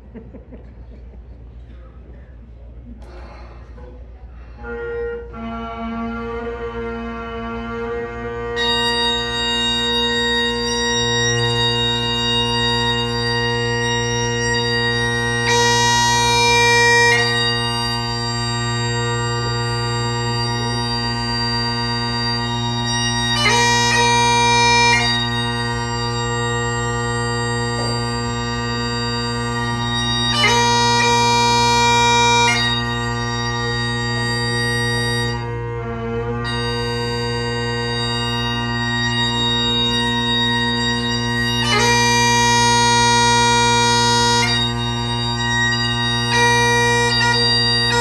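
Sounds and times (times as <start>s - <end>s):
bagpipes playing: 4.4s - 48.0s.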